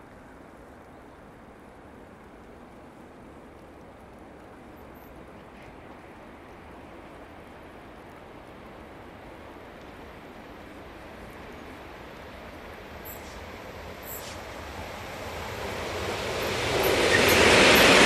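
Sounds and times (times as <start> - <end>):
freight train rumble: 4.1 - 18.0.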